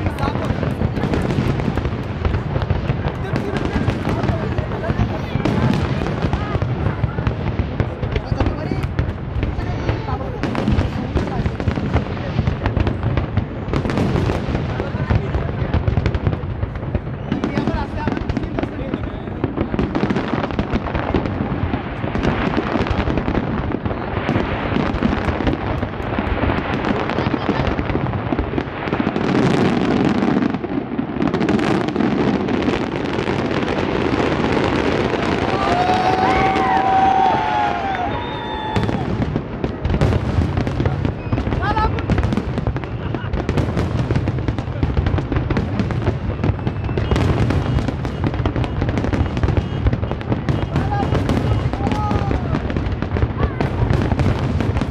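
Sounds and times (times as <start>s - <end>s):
fireworks bursting: 0.0s - 54.9s.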